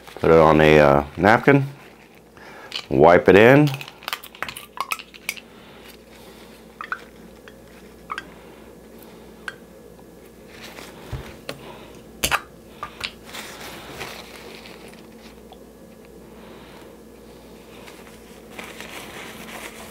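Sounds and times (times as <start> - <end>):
paper napkin rustling: 0.0 - 3.0, 10.2 - 11.9, 13.0 - 15.5, 16.6 - 19.9.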